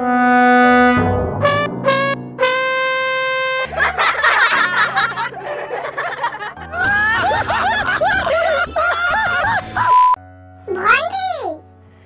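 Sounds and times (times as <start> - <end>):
background music: 0.0 - 12.0
people laughing: 3.7 - 10.1
person laughing ha ha: 3.7 - 10.1.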